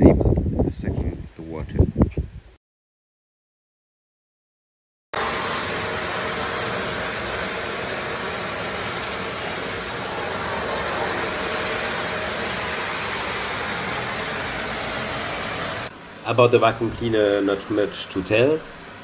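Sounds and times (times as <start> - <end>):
vacuum cleaner sucking up water: 5.2 - 15.9.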